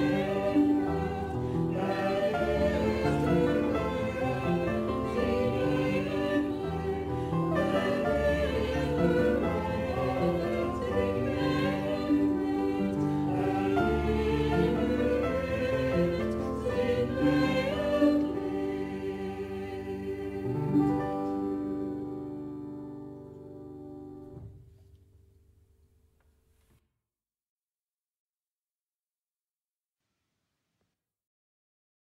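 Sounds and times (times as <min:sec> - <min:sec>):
choir singing sacred music: 0:00.0 - 0:23.2.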